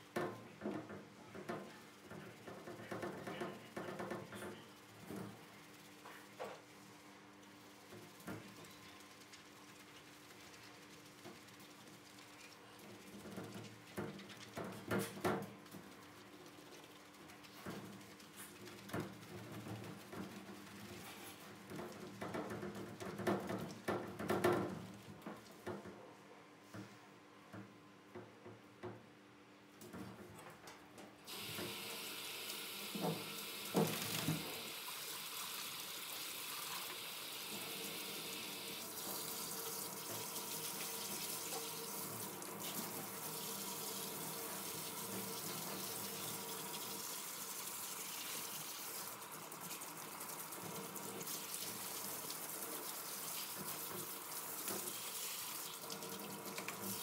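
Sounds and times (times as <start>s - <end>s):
hose water into steel sink: 31.3s - 57.0s.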